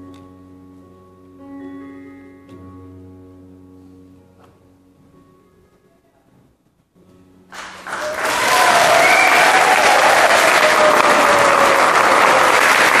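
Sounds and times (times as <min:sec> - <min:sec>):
faint music: 0:00.0 - 0:10.2
audience applauding: 0:07.5 - 0:13.0.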